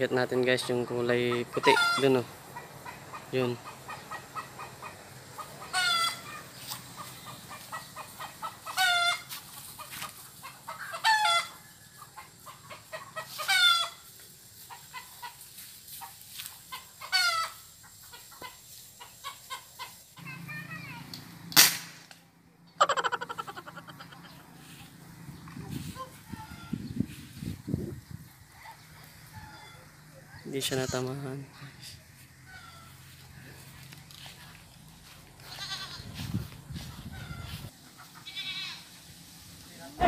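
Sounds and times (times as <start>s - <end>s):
chickens calling: 0.0s - 21.1s, 22.5s - 39.2s
chickens clucking softly: 0.4s - 14.0s, 22.7s - 30.6s
marble gun bang: 21.5s - 22.1s.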